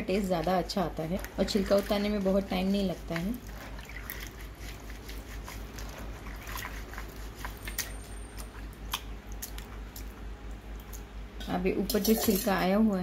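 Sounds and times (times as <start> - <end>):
hands rubbing beans in water: 0.1 - 8.6.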